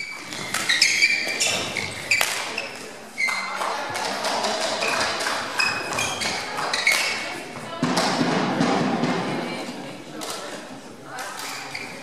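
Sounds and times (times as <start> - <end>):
shoes squeaking on hall floor: 0.0 - 7.7, 11.1 - 12.0
racket hitting shuttlecock: 0.2 - 2.6.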